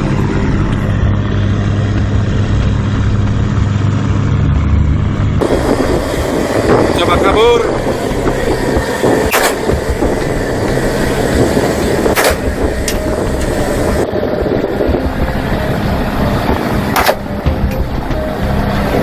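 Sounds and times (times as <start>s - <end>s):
boat engine drone: 0.0s - 19.0s
sharp bangs: 5.4s - 13.6s, 16.9s - 17.9s
rushing water and spray: 5.4s - 19.0s.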